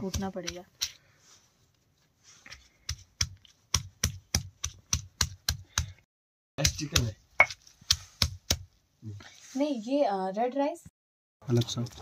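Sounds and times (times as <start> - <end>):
stone pestle pounding: 0.0 - 0.9, 2.8 - 6.0, 6.6 - 8.7.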